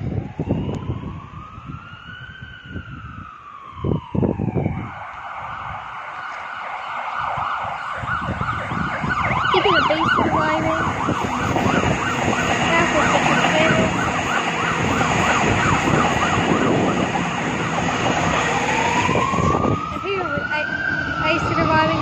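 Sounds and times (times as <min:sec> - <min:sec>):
emergency siren: 0:00.0 - 0:22.0
train rumble: 0:08.2 - 0:22.0.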